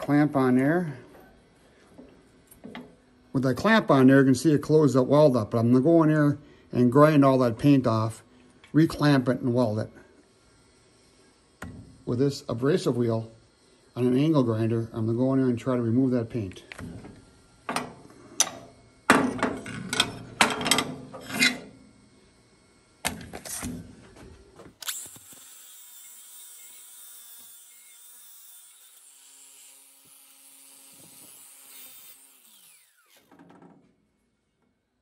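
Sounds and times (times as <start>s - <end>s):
angle grinder grinding steel: 21.0s - 21.8s, 24.8s - 33.4s.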